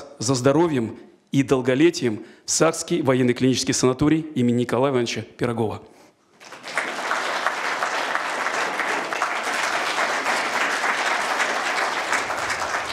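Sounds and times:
audience applause: 6.4s - 12.9s.

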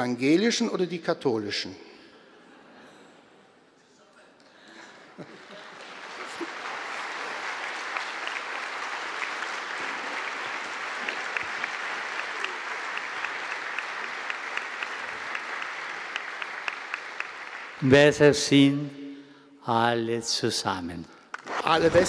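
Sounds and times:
audience applauding: 5.1s - 18.3s.

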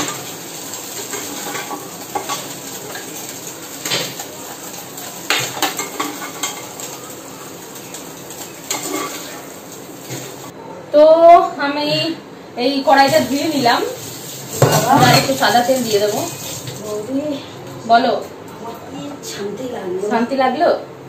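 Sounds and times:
metal spatula scraping a pan: 0.0s - 4.2s, 7.8s - 10.4s
hot oil sizzling: 0.0s - 10.5s, 12.8s - 17.4s.

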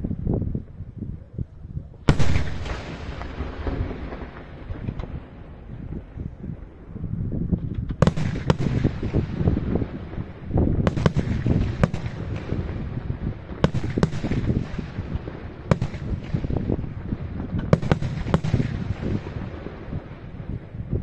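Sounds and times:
low rumble of bursts and echoes: 0.0s - 21.0s
firework shells bursting: 2.1s - 6.1s, 7.6s - 19.8s.

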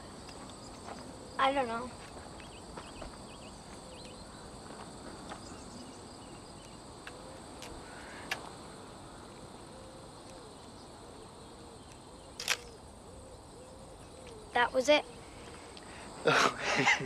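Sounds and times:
insects chirring: 0.0s - 17.0s
sharp click: 12.4s - 12.8s.

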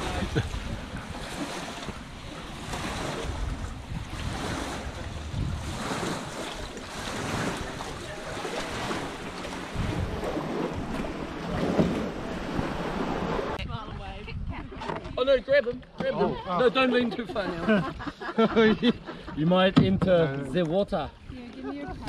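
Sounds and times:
wind buffeting microphone: 0.0s - 15.9s
water lapping against wooden jetty: 0.0s - 22.0s.

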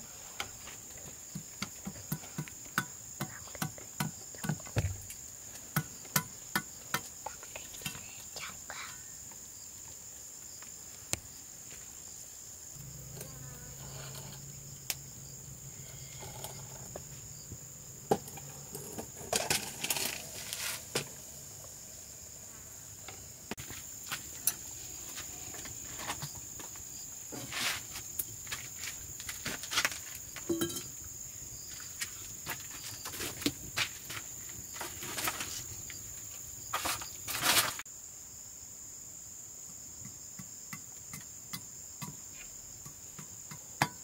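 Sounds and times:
insects droning: 0.0s - 44.0s
rustling and knocking: 0.4s - 8.2s, 16.1s - 21.3s, 32.0s - 37.8s.

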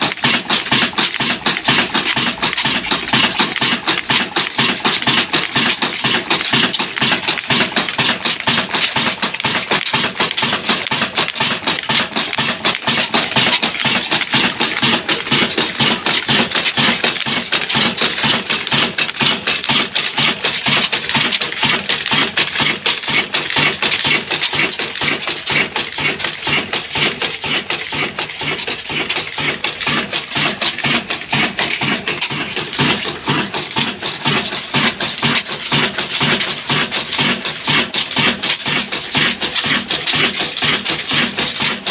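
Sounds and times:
diesel engine running: 0.0s - 41.9s
valve gear clatter: 0.0s - 41.9s.

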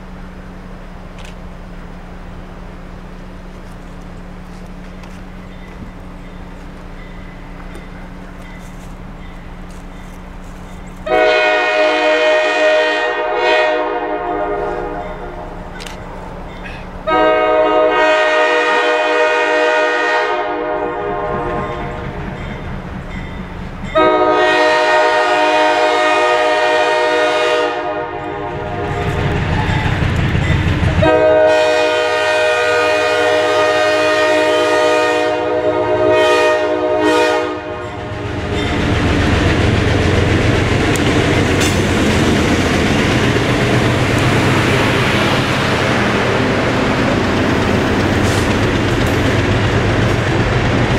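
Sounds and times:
diesel engine rumbling: 0.0s - 50.9s
train wheels on rail: 0.0s - 50.9s
locomotive air horn blasts: 11.0s - 15.7s, 16.7s - 22.2s, 24.0s - 29.9s, 31.0s - 38.3s.

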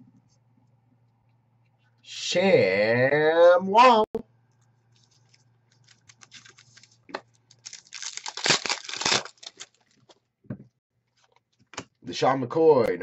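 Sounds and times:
cards clicking and rustling: 5.0s - 10.1s
foil wrapper tearing and crinkling: 5.1s - 10.0s.

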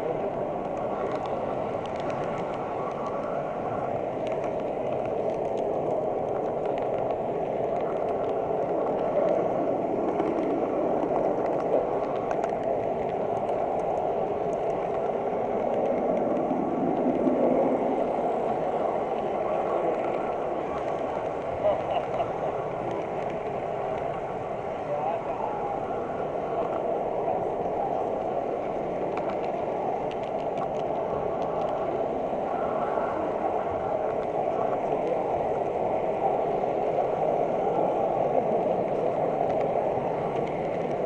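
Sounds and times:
small clicks: 0.6s - 3.4s, 10.0s - 17.4s, 29.1s - 31.9s.

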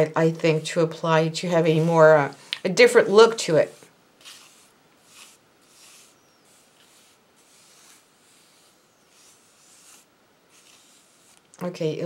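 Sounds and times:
spatula scraping paste: 2.7s - 11.6s.

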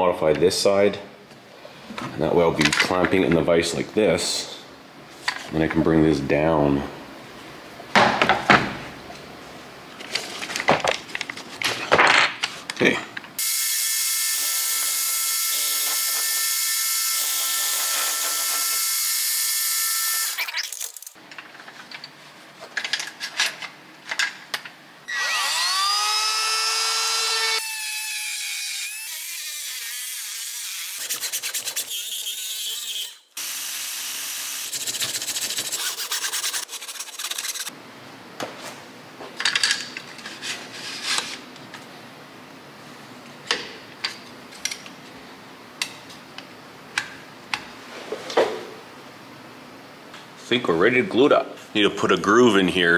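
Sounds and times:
cordless drill whine: 25.1s - 27.6s.

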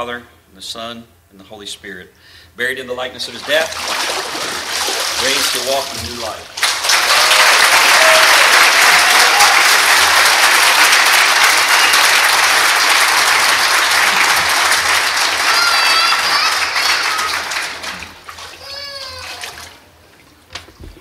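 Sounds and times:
congregation applauding: 3.5s - 18.5s
high call or cheer: 6.6s - 19.5s.

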